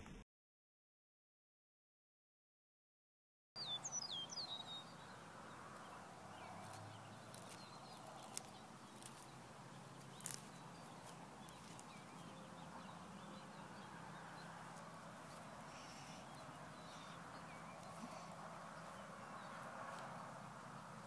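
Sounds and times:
faint chirps: 5.8s - 20.1s.

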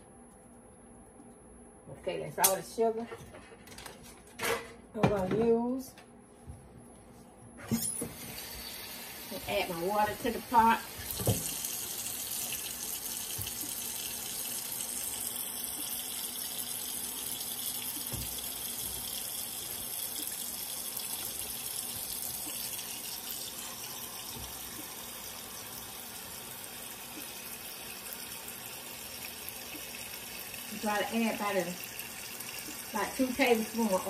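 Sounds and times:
faucet water filling a pot: 8.1s - 34.0s.

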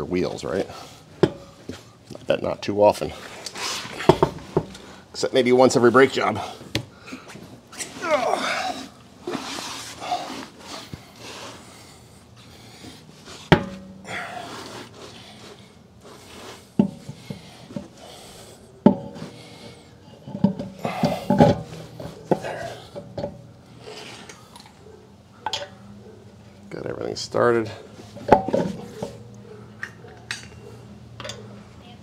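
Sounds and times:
tire rubbing and scraping: 3.0s - 6.5s, 7.3s - 24.5s, 27.2s - 29.6s.

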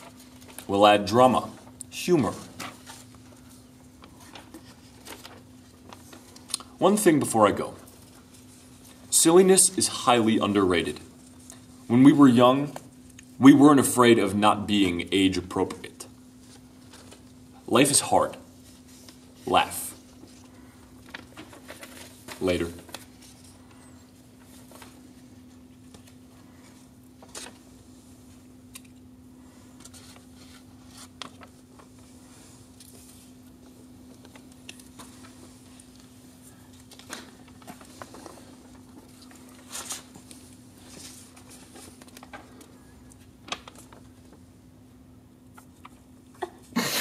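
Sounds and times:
paper rustling: 0.0s - 9.0s, 16.4s - 27.7s, 29.6s - 44.5s
steady low hum: 0.0s - 47.0s.

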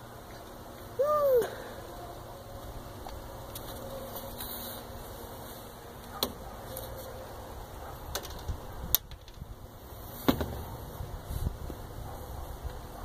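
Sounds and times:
wind rumble on microphone: 7.8s - 13.0s.

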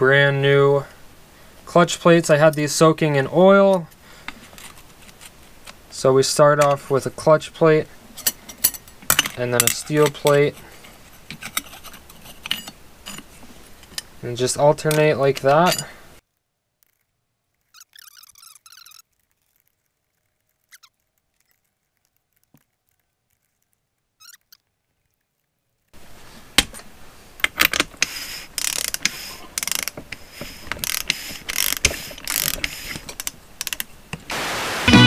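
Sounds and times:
metallic clicks and clinks: 8.2s - 14.1s.

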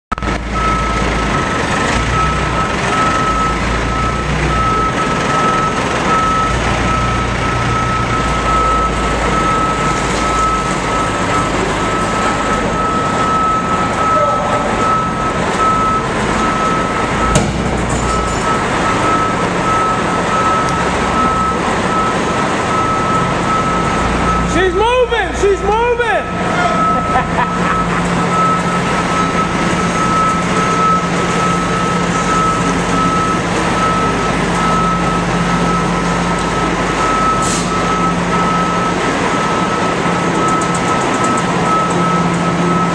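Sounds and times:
heavy engine running: 0.1s - 42.9s
reversing alarm beeping: 0.1s - 42.9s
sharp knock: 17.3s - 17.8s.

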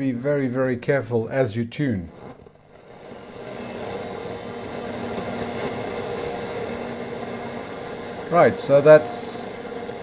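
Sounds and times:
shortwave radio static: 2.0s - 10.0s
faint steady tones: 2.1s - 10.0s.

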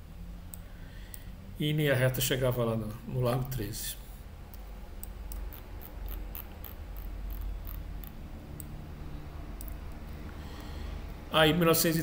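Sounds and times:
low steady hum: 0.0s - 12.0s
computer mouse clicking: 4.5s - 8.8s, 9.6s - 10.7s.

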